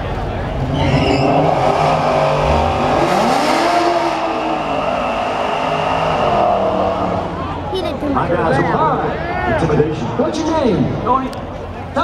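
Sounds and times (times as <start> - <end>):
car engine revving hard: 0.6 - 7.6.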